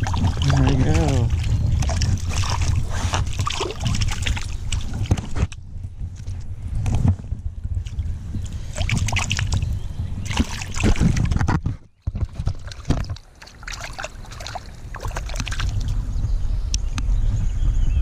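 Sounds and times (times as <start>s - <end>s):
water sloshing and splashing: 0.0s - 16.0s
low rumble: 14.9s - 18.0s.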